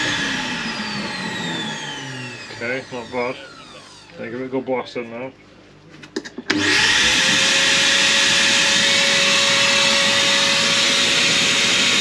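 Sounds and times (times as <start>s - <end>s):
vacuum cleaner blowing air: 0.0s - 4.1s, 6.5s - 12.0s.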